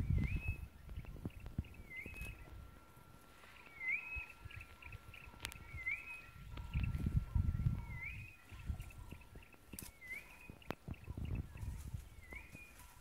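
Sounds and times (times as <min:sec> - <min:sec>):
thin steady high tone: 0:01.6 - 0:13.0
bird whistling call: 0:03.6 - 0:06.9, 0:07.5 - 0:09.2, 0:09.8 - 0:10.6, 0:11.6 - 0:12.8.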